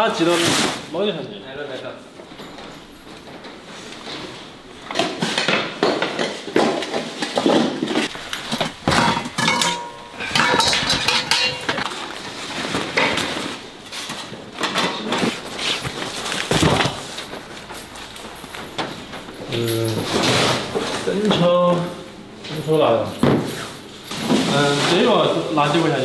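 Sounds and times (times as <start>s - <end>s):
metal pots clattering: 4.2s - 21.4s.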